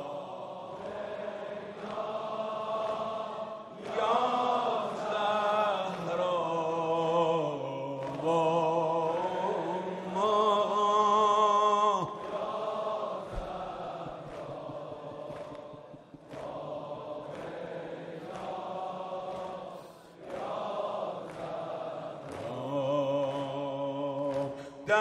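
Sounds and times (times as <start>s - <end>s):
man chanting lament: 4.0s - 12.3s, 22.4s - 25.0s.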